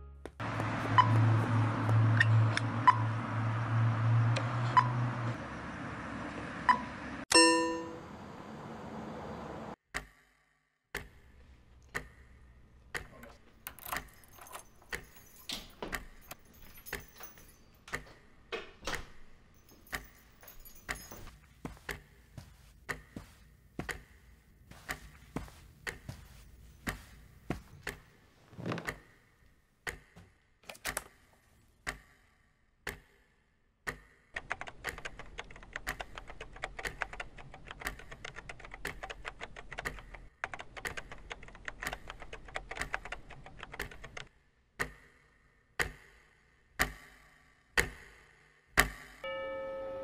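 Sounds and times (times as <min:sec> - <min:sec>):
laptop keyboard typing: 0:34.4 - 0:44.3.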